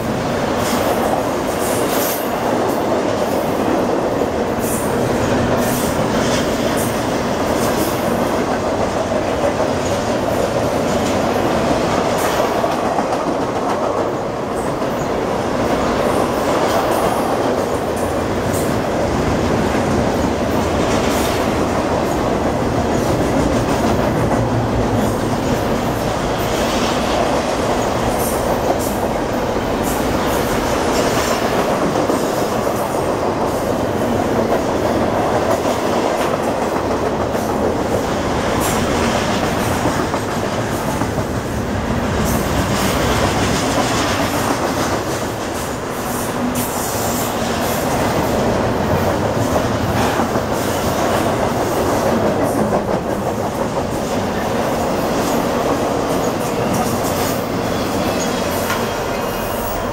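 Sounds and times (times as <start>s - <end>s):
train wheels rumbling: 0.0s - 59.9s.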